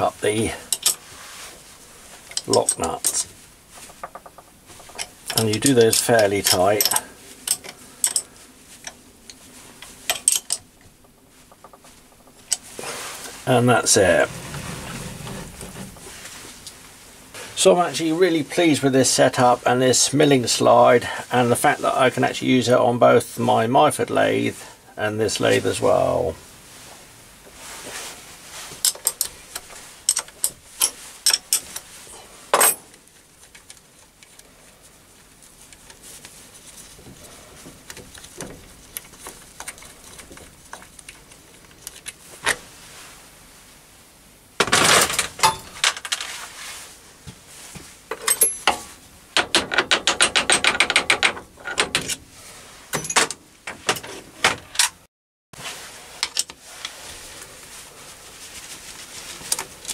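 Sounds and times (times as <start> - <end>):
metal clinks and clanks: 2.3 - 9.0, 9.8 - 12.6, 48.2 - 48.9.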